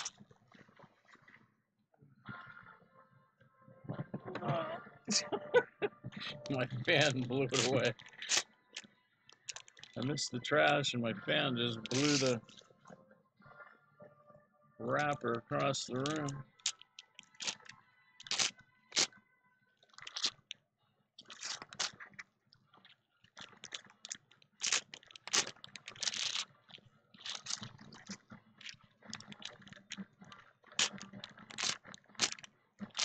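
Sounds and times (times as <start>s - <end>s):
card pack wrappers crinkling: 6.4s - 8.4s, 9.3s - 10.1s, 11.8s - 12.5s, 15.0s - 19.1s, 20.0s - 20.5s, 21.2s - 22.0s, 23.4s - 26.5s, 27.2s - 30.0s, 30.7s - 33.0s.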